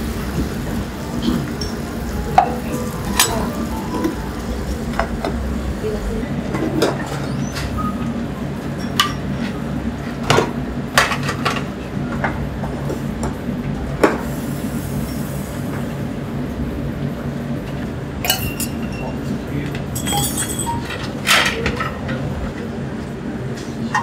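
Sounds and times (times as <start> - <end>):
steady low hum: 0.0 - 7.2
metal utensils clinking on pan: 20.0 - 21.9.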